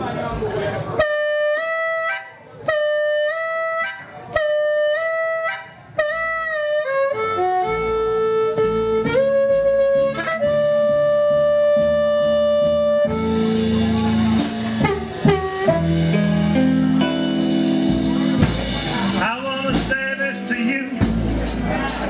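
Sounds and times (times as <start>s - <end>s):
band with bass drums and guitars: 0.0s - 22.0s
amplified blues harmonica: 1.0s - 18.4s.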